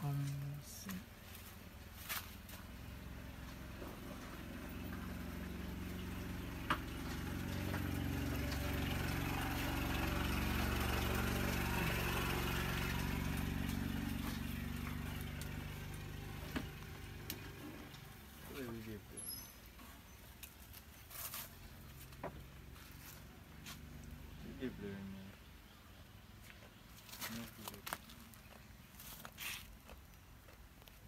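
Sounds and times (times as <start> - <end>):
vehicle engine humming: 0.0 - 31.0.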